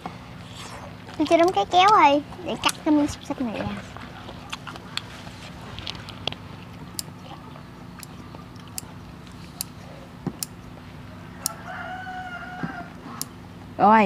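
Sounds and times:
rooster crowing: 0:11.1 - 0:13.2.

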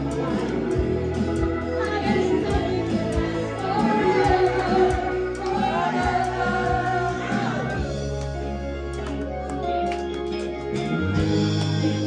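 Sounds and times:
live rock band playing: 0:00.0 - 0:12.0
woman singing: 0:01.6 - 0:07.5.

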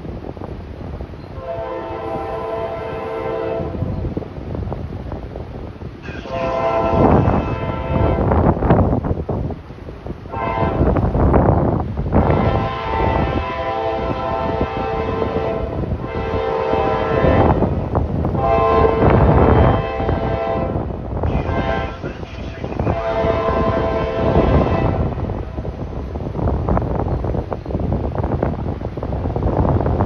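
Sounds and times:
low train rumble: 0:00.0 - 0:30.0
locomotive air horn blasts: 0:01.4 - 0:03.9, 0:06.0 - 0:08.5, 0:10.3 - 0:11.0, 0:12.2 - 0:25.8.

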